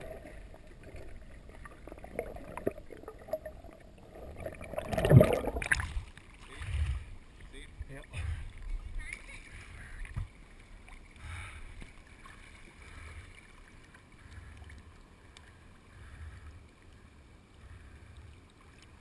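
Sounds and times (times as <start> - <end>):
muffled water sloshing: 0.0 - 19.0.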